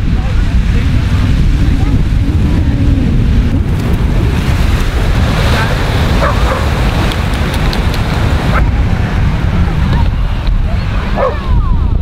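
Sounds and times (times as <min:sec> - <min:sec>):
breaking surf: 0:00.0 - 0:12.0
wind buffeting microphone: 0:00.0 - 0:12.0
faint voices: 0:05.2 - 0:12.0.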